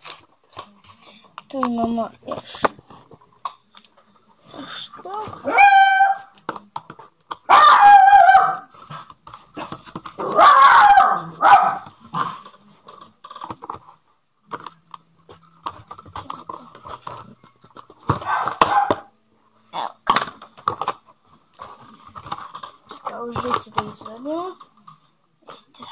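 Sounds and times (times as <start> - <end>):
dog yelping and whining: 5.1 - 6.3, 7.5 - 8.7, 10.2 - 11.8.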